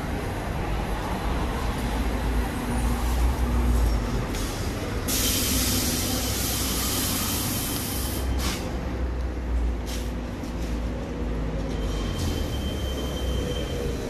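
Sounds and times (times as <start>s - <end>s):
street traffic rumbling: 0.0s - 14.0s
loud hiss: 4.4s - 8.7s.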